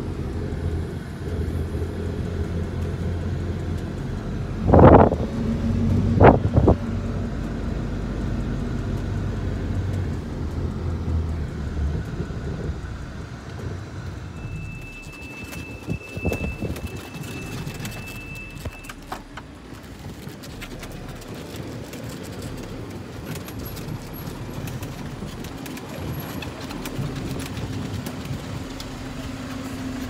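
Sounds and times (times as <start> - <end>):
wheels rolling over cobblestones: 0.0 - 30.0
thin high tone: 14.4 - 19.1.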